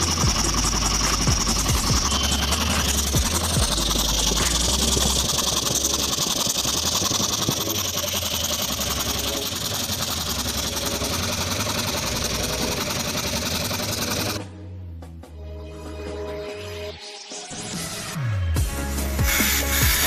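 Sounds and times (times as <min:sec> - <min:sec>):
air compressor running: 0:00.0 - 0:14.4.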